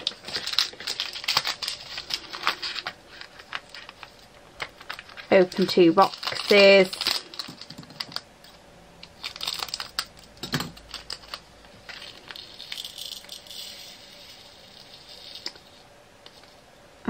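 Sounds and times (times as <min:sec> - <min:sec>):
tiny beads pouring into pots: 0:05.3 - 0:07.7, 0:12.0 - 0:15.8.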